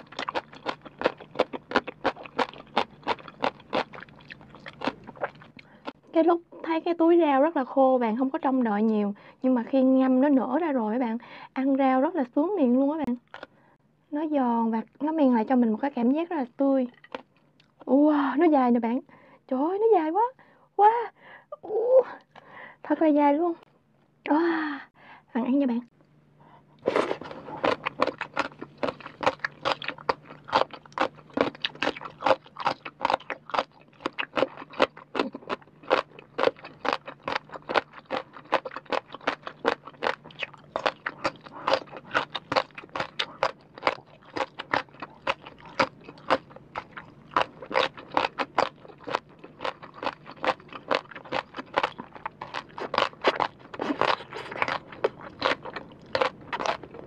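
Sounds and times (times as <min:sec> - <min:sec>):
crunching and chewing: 0:00.0 - 0:06.1, 0:13.2 - 0:13.6, 0:16.9 - 0:17.9, 0:26.8 - 0:57.0.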